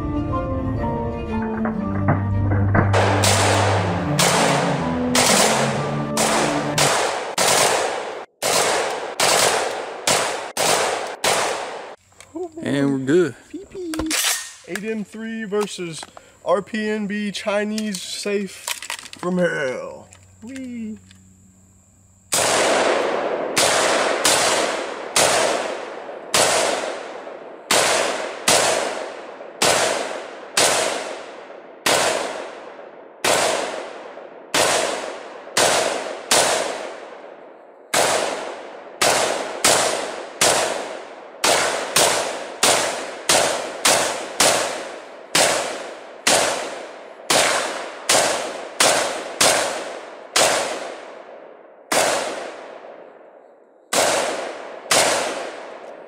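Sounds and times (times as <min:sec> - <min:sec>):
rifle shots with ringing echo: 0:02.7 - 0:12.0, 0:22.2 - 0:56.0.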